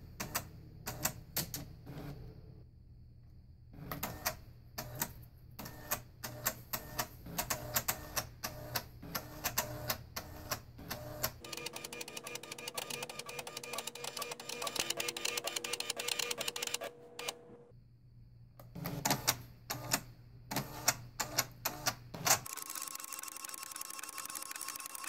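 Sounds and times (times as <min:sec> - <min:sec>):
printer carriage ticking: 0:10.9 - 0:17.5.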